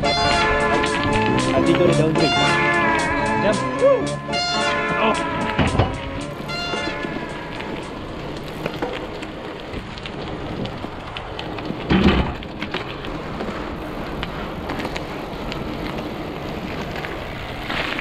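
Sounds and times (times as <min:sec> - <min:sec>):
bicycle tyres crunching on gravel: 0:00.0 - 0:18.0
bicycle knock: 0:04.4 - 0:09.2.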